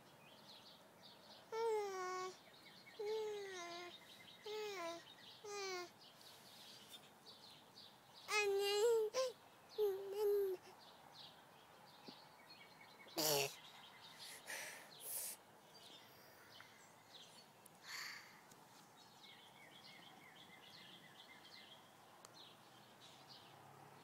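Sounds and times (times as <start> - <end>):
small birds chirping: 0.0 - 24.0
toddler vocal sound: 1.5 - 2.4, 3.0 - 5.9, 8.3 - 10.7, 13.2 - 13.6, 14.2 - 15.4
soft rustles: 6.1 - 7.1, 18.4 - 19.0.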